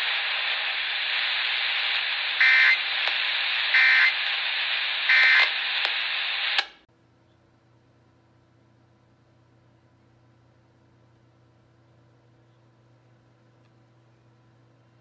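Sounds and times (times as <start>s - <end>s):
radio click: 0.0s - 4.5s, 5.1s - 6.8s
radio static hiss: 0.0s - 6.8s
short data bursts: 2.4s - 2.9s, 3.7s - 4.2s, 5.0s - 5.6s.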